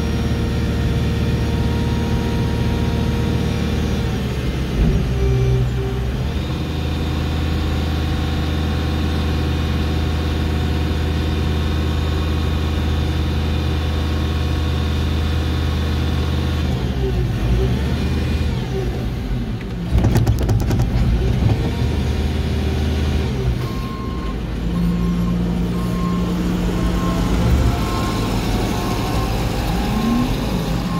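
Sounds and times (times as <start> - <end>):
diesel engine running: 0.0 - 30.9
beeping warning alarm: 23.7 - 30.9.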